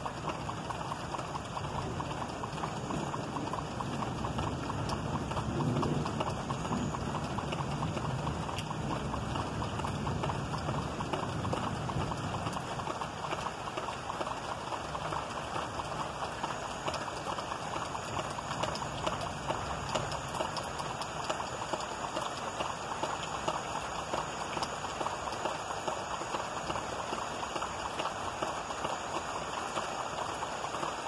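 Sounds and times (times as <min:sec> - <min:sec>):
rain patter: 0:00.0 - 0:31.0
low thunder rumble: 0:01.7 - 0:13.0.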